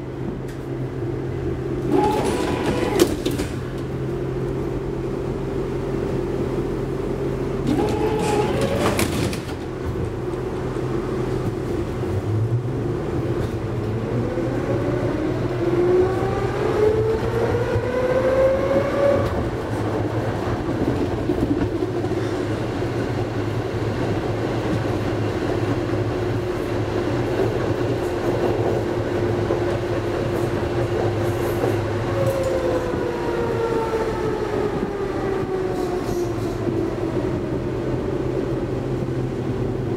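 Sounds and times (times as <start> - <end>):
rolling rail noise: 0.0 - 39.9
tram doors closing: 0.0 - 39.9
traction motors whining: 1.8 - 4.6, 7.5 - 9.7, 31.0 - 38.2.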